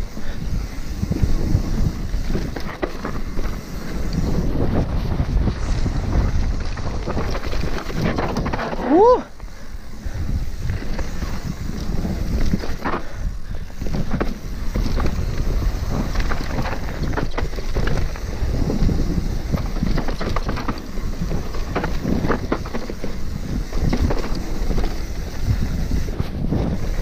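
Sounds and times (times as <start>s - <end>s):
mountain bike rumble: 0.0s - 27.0s
tyre noise on loose dirt: 0.0s - 27.0s
wind buffeting microphone: 0.0s - 27.0s
bike clattering over bumps: 0.8s - 27.0s.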